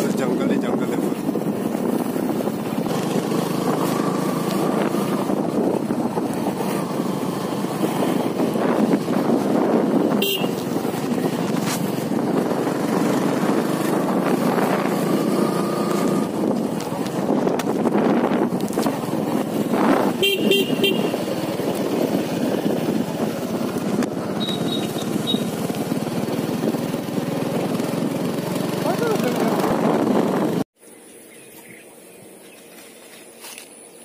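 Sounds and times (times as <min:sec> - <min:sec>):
wind rush: 0:00.0 - 0:24.4, 0:25.0 - 0:30.7
motorcycle engine running: 0:00.0 - 0:30.7
vehicle horn beeping: 0:10.1 - 0:10.7, 0:20.2 - 0:21.2, 0:24.4 - 0:25.6.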